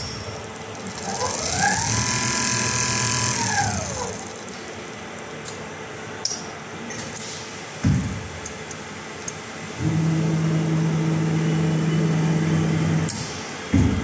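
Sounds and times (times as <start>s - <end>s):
sewing machine motor whining: 0.8s - 4.6s.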